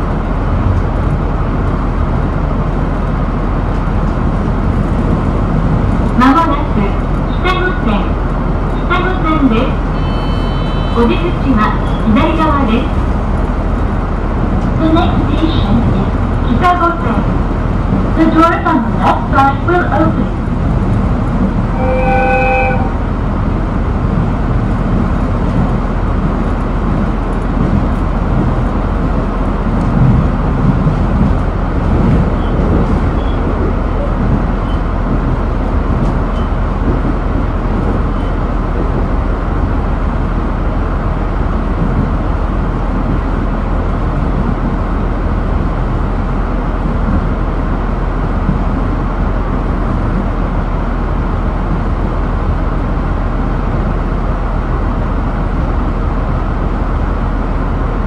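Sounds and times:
railcar engine and wheels on rail: 0.0 - 58.0
train horn blast: 9.8 - 12.2, 21.7 - 23.0.

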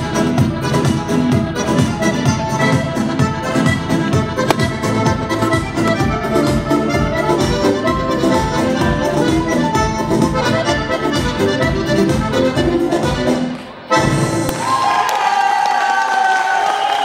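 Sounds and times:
button accordion dance tune: 0.0 - 14.5
bass beat thumps: 4.2 - 10.2.

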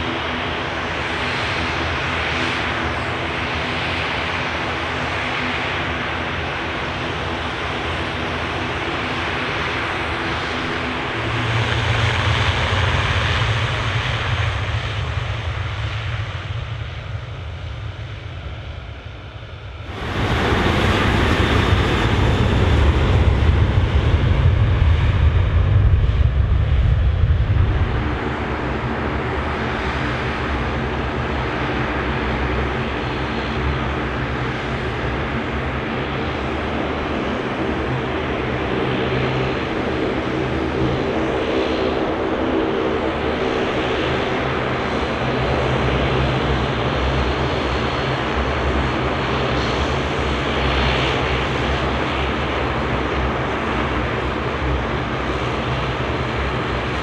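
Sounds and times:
airliner engines rumbling: 0.0 - 57.0.

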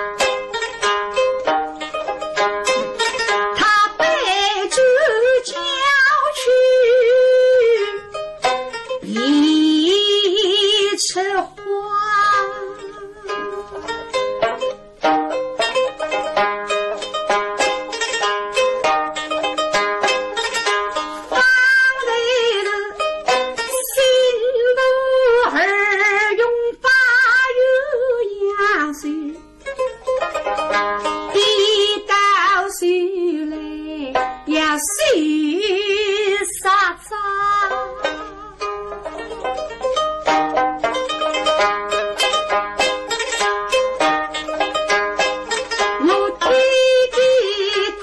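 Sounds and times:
plucked pipa notes: 0.0 - 48.0
woman singing long wavering notes: 3.6 - 8.1, 9.0 - 13.9, 21.3 - 23.0, 23.7 - 29.4, 31.3 - 38.4, 46.0 - 48.0.

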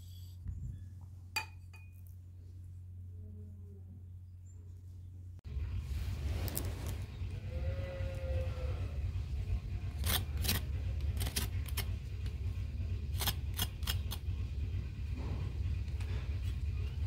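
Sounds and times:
steady low rumble: 0.1 - 17.0.

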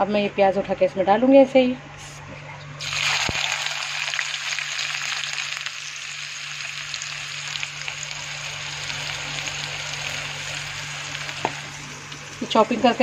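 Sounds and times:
onions sizzling in hot oil: 2.8 - 13.0.

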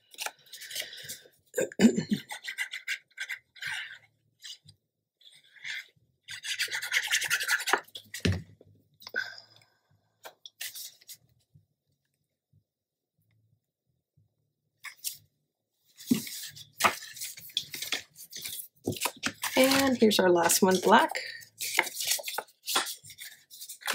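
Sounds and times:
paper rustling and rubbing: 15.9 - 20.9, 21.6 - 23.9.

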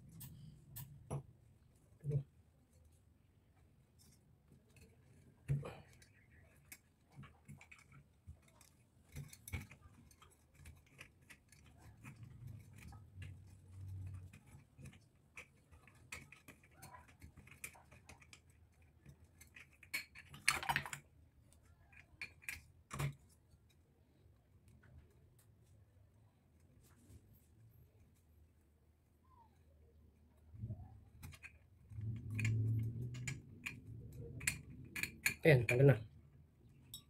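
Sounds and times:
small metallic clicks and taps: 0.0 - 1.3, 4.0 - 23.8, 30.6 - 37.0.

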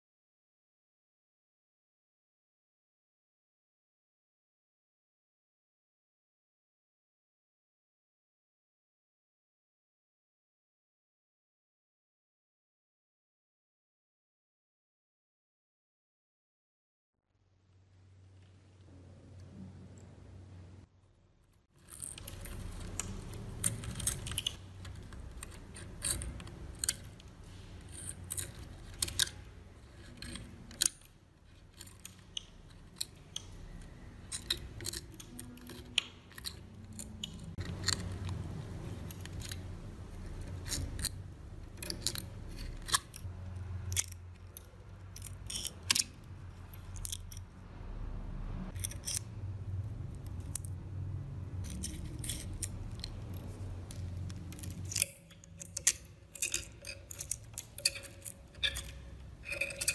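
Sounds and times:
tweezers clicking on rust: 21.8 - 47.5, 48.7 - 50.8, 51.5 - 59.9.

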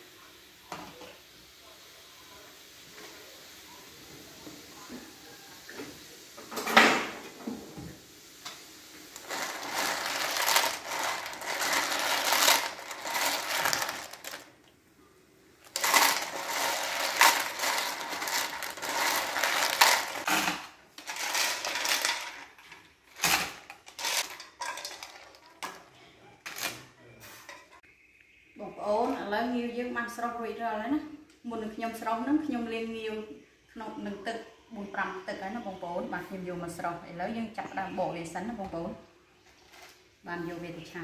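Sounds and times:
shells clattering in a pan: 9.1 - 14.5, 15.6 - 25.8.

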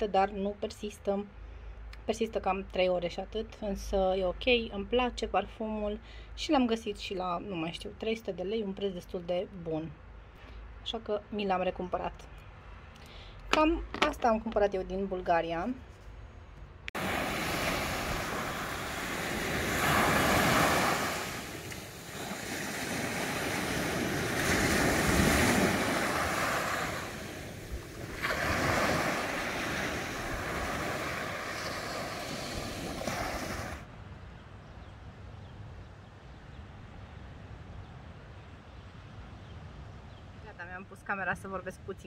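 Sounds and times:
waves washing onto a beach: 17.0 - 33.9.

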